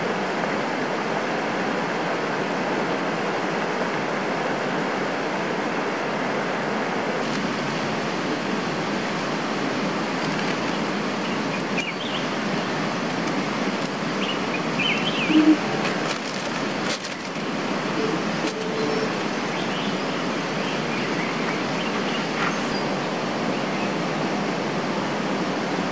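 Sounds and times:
stream rushing over boulders: 0:00.0 - 0:25.9
bird chirps: 0:14.2 - 0:15.7.

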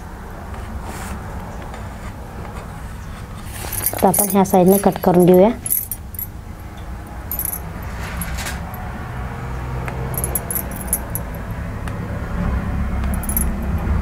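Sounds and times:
glass bangles clinking: 0:03.5 - 0:08.7, 0:10.2 - 0:11.4, 0:13.1 - 0:14.0.

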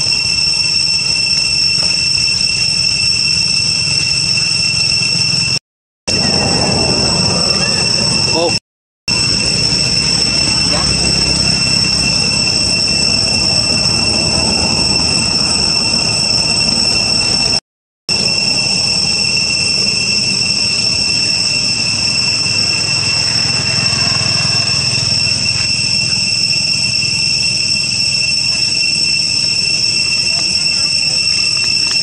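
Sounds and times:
high-pitched insect drone: 0:00.0 - 0:32.0
low rumble: 0:05.2 - 0:28.0.

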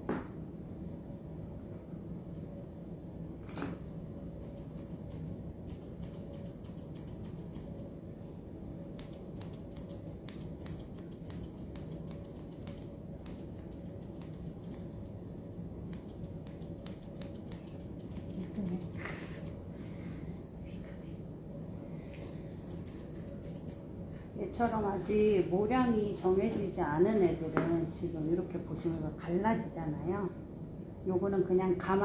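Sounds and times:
steady low hum: 0:00.0 - 0:32.0
grooming scissors snipping: 0:04.4 - 0:07.9, 0:08.8 - 0:15.0, 0:15.8 - 0:19.6, 0:22.5 - 0:23.8.

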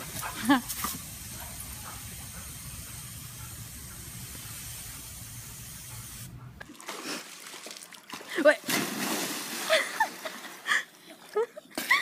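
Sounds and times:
hose nozzle spray hissing: 0:00.0 - 0:06.4.

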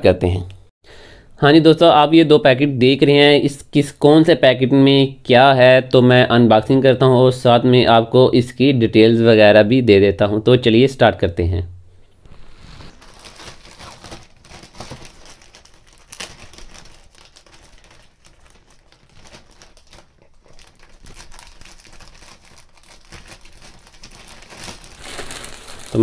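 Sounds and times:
plastic mailer bag crinkling: 0:12.3 - 0:26.0.

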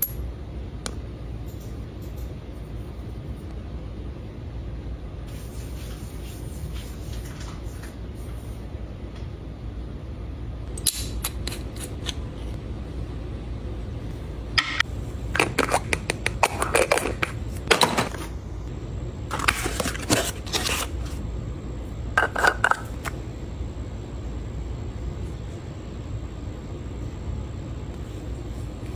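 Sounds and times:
low background hum: 0:00.0 - 0:28.9
jars clicking and tapping: 0:22.2 - 0:23.1.

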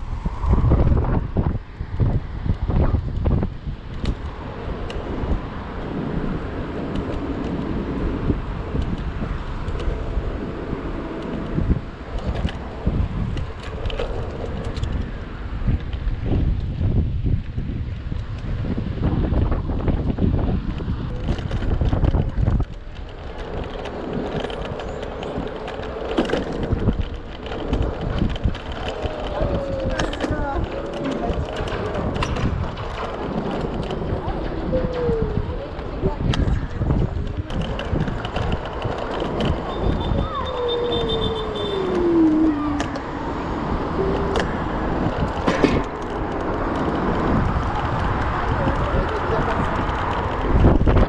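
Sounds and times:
road noise rushing: 0:00.0 - 0:51.0
wind buffeting microphone: 0:00.0 - 0:51.0
sharp knocks and rattles: 0:21.2 - 0:35.1.

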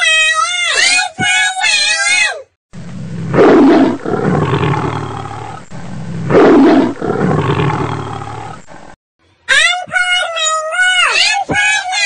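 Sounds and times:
big cat roaring: 0:03.0 - 0:09.0.

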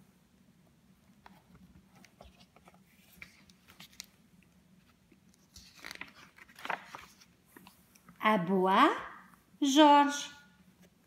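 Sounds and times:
book pages rustling: 0:01.1 - 0:08.2.

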